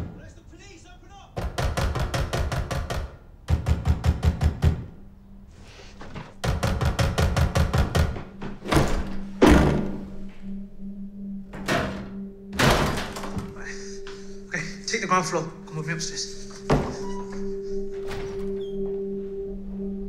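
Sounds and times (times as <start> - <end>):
low steady drone: 8.8 - 20.0.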